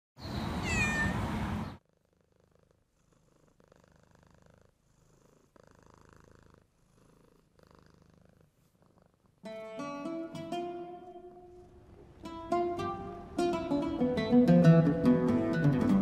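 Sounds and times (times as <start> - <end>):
cat purring: 1.8 - 9.5
plucked oud music: 9.5 - 11.6, 12.2 - 16.0.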